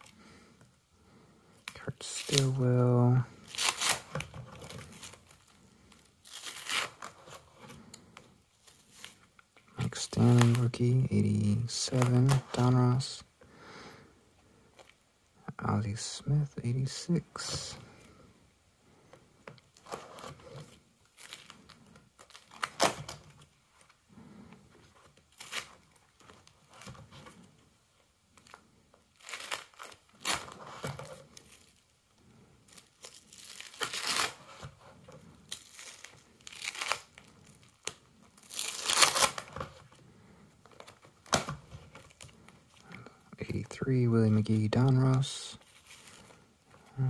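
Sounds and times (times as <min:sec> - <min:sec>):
plastic binder pages crinkling: 0:01.6 - 0:13.0, 0:19.1 - 0:47.0.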